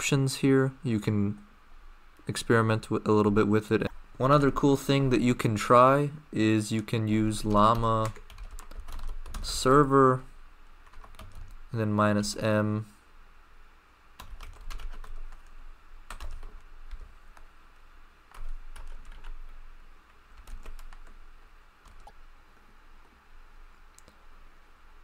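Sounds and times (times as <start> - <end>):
typing on computer keyboard: 7.5 - 9.5, 10.8 - 11.6, 14.2 - 15.5, 16.1 - 17.1, 18.3 - 19.5, 20.4 - 22.2.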